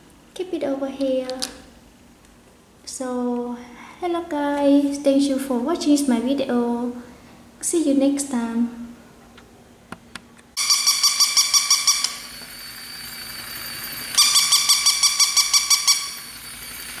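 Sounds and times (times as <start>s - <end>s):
toy puppy electronic yips: 10.6s - 12.4s, 14.1s - 17.0s
toy walking mechanism whir: 10.6s - 17.0s.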